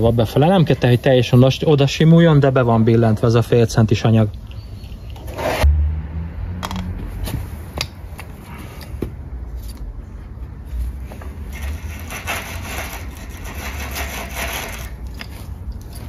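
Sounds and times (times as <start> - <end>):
sheet metal rubbing and scraping: 5.2 - 5.7, 11.5 - 15.1.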